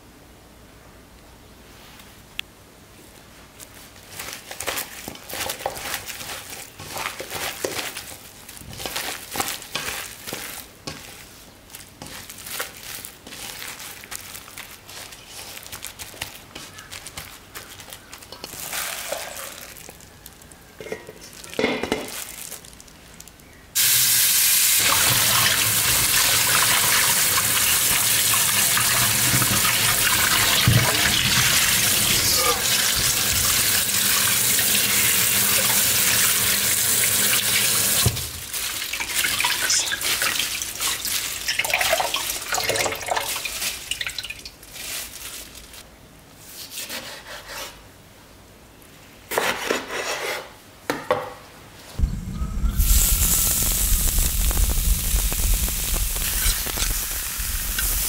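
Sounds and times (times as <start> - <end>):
water splashing and handling: 4.1 - 19.9, 34.9 - 45.8.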